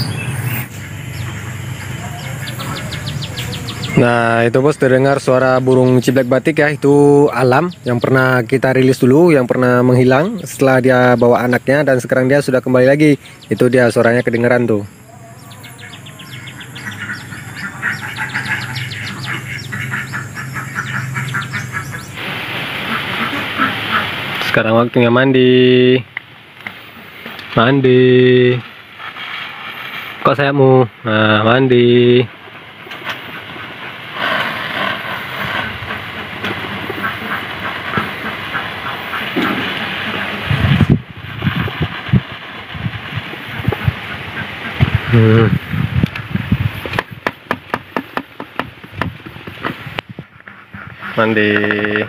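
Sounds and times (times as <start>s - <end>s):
bird singing sharp notes: 0.0s - 6.4s, 13.2s - 22.2s
water sprayer hissing mist: 17.6s - 24.6s, 32.6s - 45.1s.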